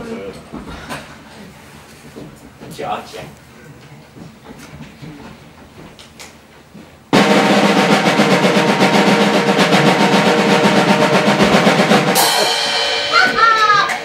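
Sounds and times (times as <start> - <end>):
snare drum roll: 7.1 - 14.0.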